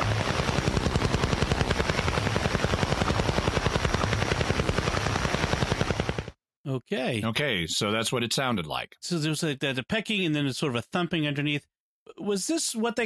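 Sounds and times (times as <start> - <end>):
rapid radio pulse pecking: 0.0 - 6.4.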